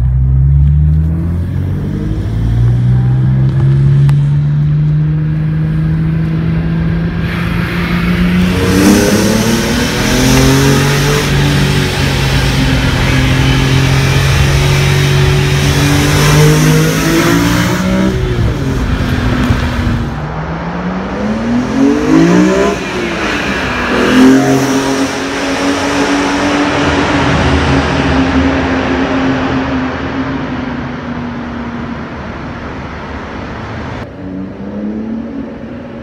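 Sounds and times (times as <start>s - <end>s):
car engine revving inside cabin: 0.2s - 28.0s.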